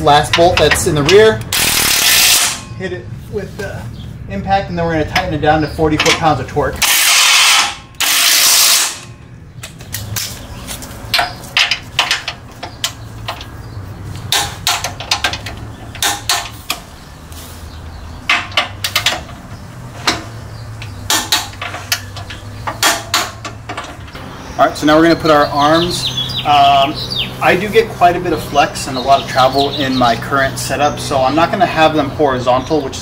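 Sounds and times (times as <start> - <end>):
impact wrench running: 1.4 - 2.6, 6.8 - 9.1
torque wrench ratcheting clicks: 1.4 - 2.6.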